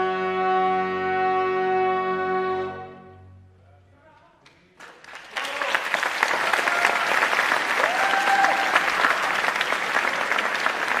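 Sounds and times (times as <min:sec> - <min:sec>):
audience applause: 0:04.8 - 0:11.0
crowd shouts: 0:07.8 - 0:08.9.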